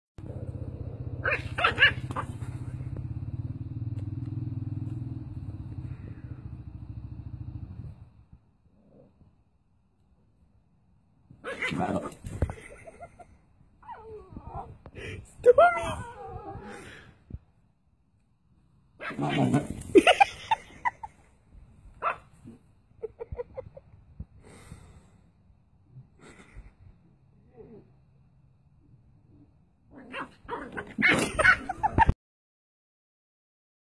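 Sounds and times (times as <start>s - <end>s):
puppy yapping: 1.2s - 2.4s.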